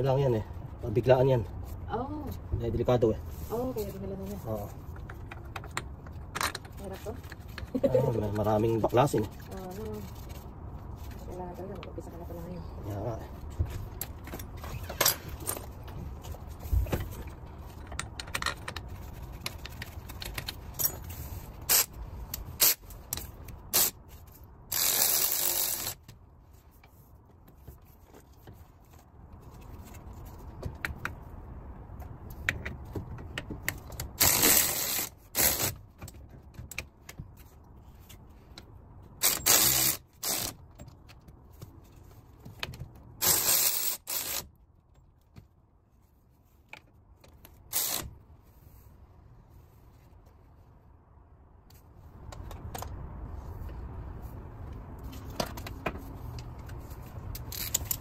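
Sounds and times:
metal tools clinking: 0:20.6 - 0:21.2
ratchet wrench ratcheting: 0:21.7 - 0:24.0, 0:24.7 - 0:26.0, 0:34.1 - 0:35.8, 0:39.2 - 0:40.6, 0:43.2 - 0:44.5, 0:47.7 - 0:48.1, 0:57.3 - 0:58.0.

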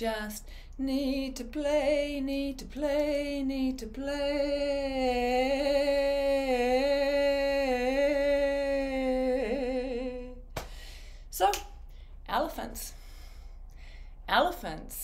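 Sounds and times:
woman singing without words: 0:00.0 - 0:10.6.

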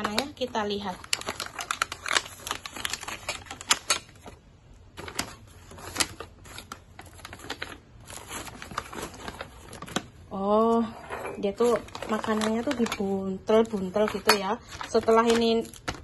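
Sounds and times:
paper wrapping crackling: 0:00.0 - 0:16.0.

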